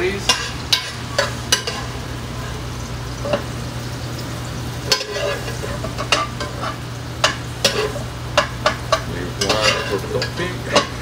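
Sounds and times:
steady hiss and low hum: 0.0 - 11.0
metal tongs scraping pan: 4.8 - 11.0.

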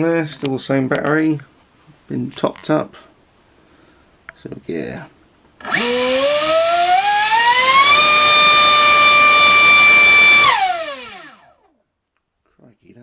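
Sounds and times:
electric motor whine: 5.6 - 11.6.

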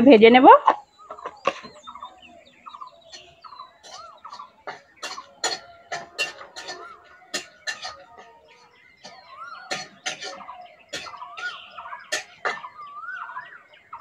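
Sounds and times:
metal spatula scraping metal pan: 3.1 - 12.8.

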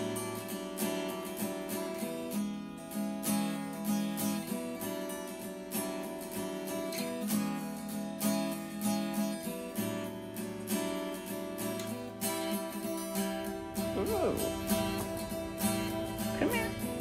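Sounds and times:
strummed acoustic guitar: 0.0 - 17.0.

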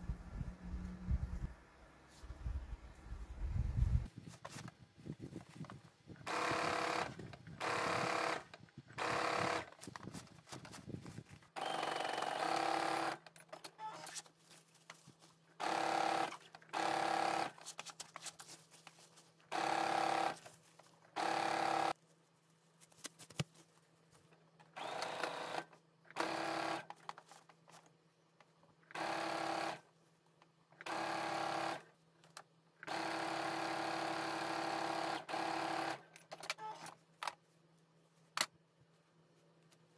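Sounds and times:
sewing machine stitching: 6.3 - 9.7, 11.6 - 14.0, 24.8 - 26.9, 28.9 - 29.8, 32.8 - 36.8.

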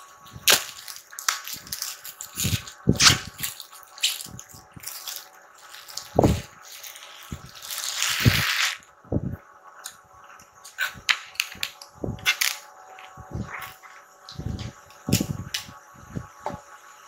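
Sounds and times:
cardboard packaging rustling: 0.0 - 8.8.

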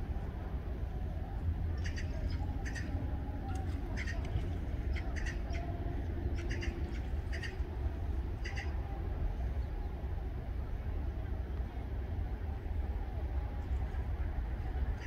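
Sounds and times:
steady low rumble: 0.0 - 15.0
coots giving sharp calls: 1.8 - 7.7, 8.4 - 8.8.

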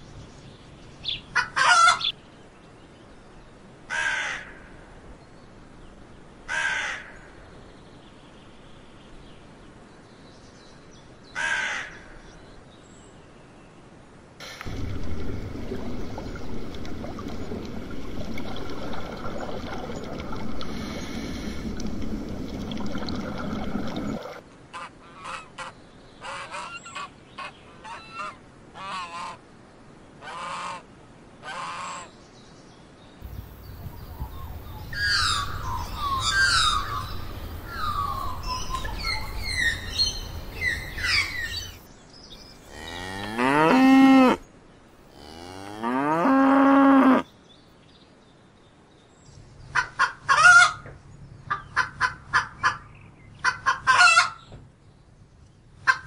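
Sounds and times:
low rumbling noise: 14.4 - 24.4, 33.2 - 41.8
geese honking: 34.5 - 41.8
cow mooing: 42.6 - 44.4, 45.1 - 47.2.

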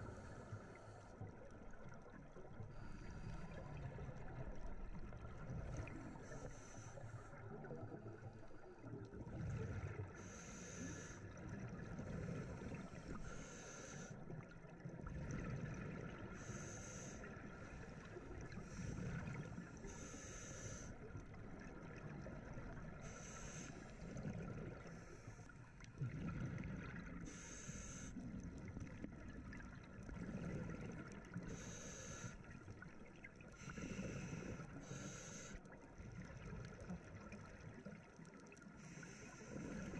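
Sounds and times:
diver breathing through regulator: 10.2 - 11.3, 12.1 - 14.2, 16.4 - 17.9, 18.5 - 21.0, 23.0 - 25.6, 26.3 - 28.2, 31.4 - 32.5, 33.6 - 35.7, 38.8 - 39.9.

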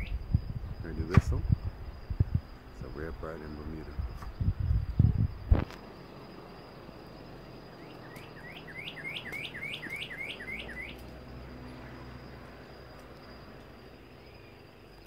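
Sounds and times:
bird whistling rising notes: 0.0 - 0.3, 7.7 - 11.1, 14.2 - 14.7.

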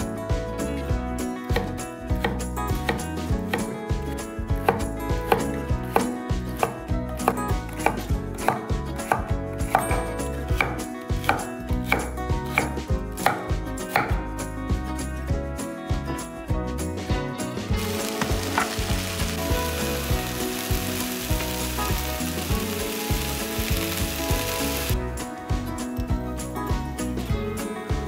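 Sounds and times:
knife chopping on cutting board: 4.6 - 14.2.

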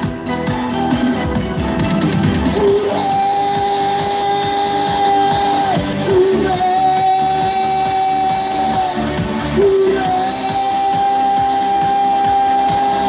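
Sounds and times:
recorded backing track: 0.0 - 13.0
man singing into a microphone: 2.6 - 13.0.

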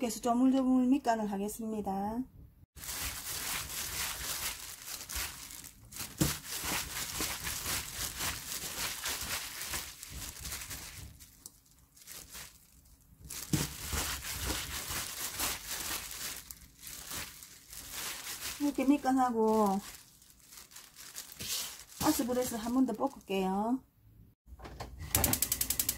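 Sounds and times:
plastic glove crinkling: 2.8 - 23.4.

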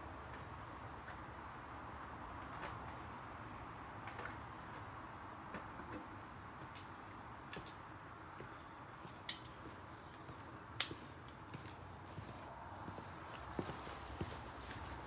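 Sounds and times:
boot footsteps on concrete: 8.4 - 15.0.

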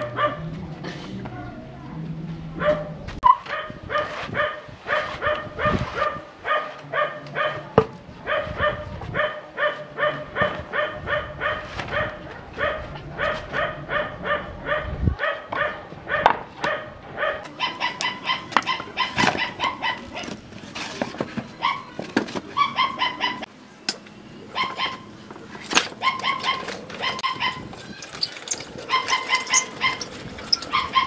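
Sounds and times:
small dog barking: 0.0 - 0.4, 2.6 - 2.9, 3.5 - 7.7, 8.3 - 20.3, 22.6 - 23.4.

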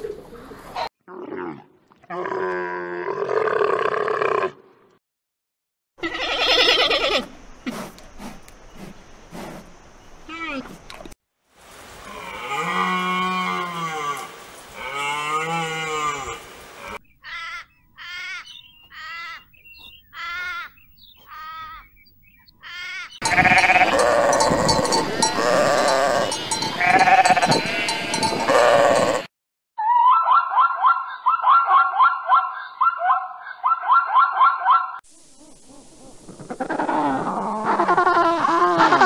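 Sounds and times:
sheep bleating: 6.0 - 7.3, 22.6 - 29.3
long arching animal calls: 6.0 - 7.9, 28.5 - 39.0.

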